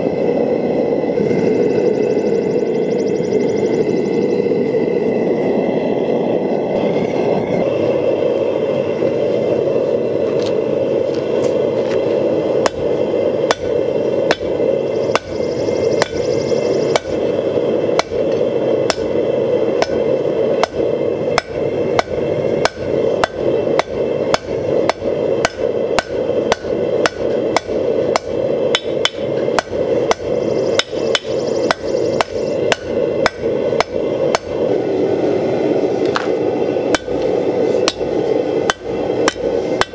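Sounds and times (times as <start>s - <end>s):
forge burner roar: 0.0s - 39.9s
hammer striking hot metal on anvil: 12.6s - 15.4s, 16.0s - 16.2s, 16.9s - 17.3s, 18.0s - 19.2s, 19.8s - 34.6s, 36.9s - 39.9s.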